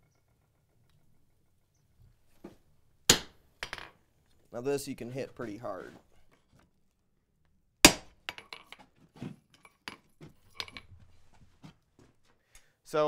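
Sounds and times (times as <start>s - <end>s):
sledgehammer striking anvil: 3.1s - 3.4s, 7.8s - 8.1s.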